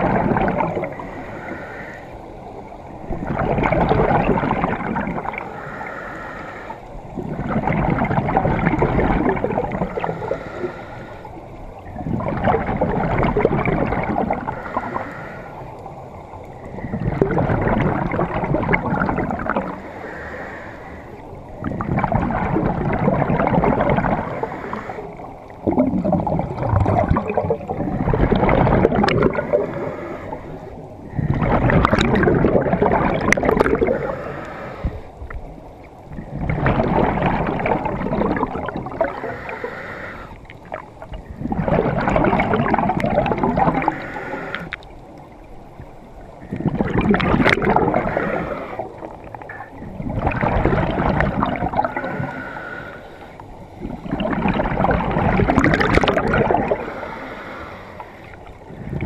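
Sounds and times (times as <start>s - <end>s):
scuba exhaled bubbles gurgling: 0.0s - 59.0s.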